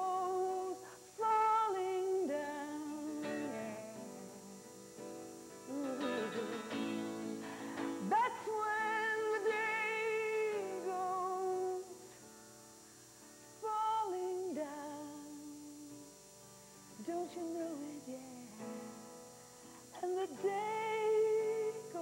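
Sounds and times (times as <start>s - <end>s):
strummed acoustic guitar: 2.3s - 11.2s.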